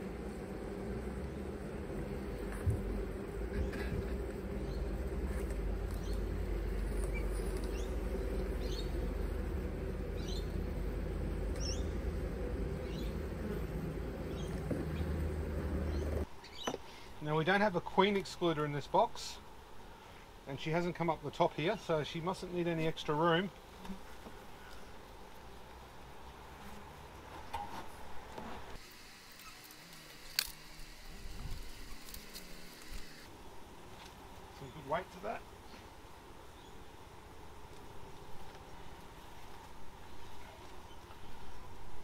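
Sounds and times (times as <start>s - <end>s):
bees humming: 0.0s - 16.6s, 28.8s - 39.3s
honeybees buzzing: 0.0s - 42.0s.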